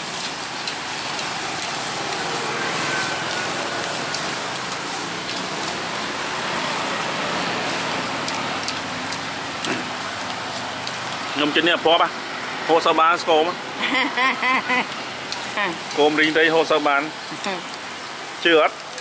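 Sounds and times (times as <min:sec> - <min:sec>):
meat sizzling on a grill: 0:00.0 - 0:19.0.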